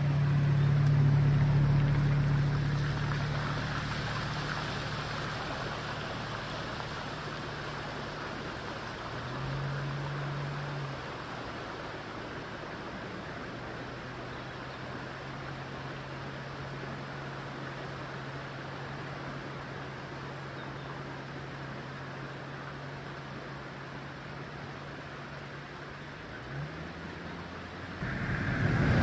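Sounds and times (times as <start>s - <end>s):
car engine driving past: 0.0s - 16.8s, 26.3s - 29.0s
water rush and tyre spray: 0.0s - 29.0s.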